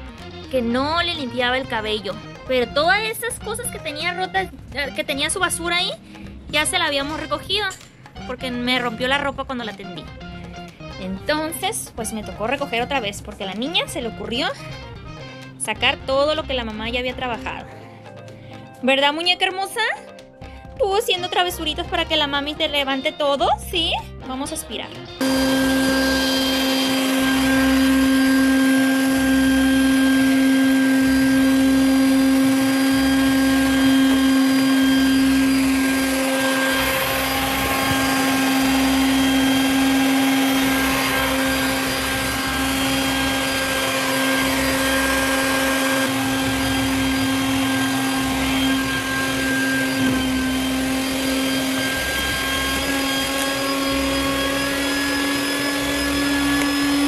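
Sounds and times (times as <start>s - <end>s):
shop vacuum motor hum: 25.2s - 57.0s
vacuum nozzle sucking debris: 25.2s - 57.0s.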